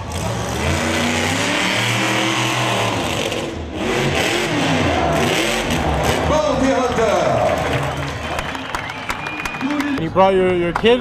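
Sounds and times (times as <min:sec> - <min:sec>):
truck engine revving: 0:00.0 - 0:10.0.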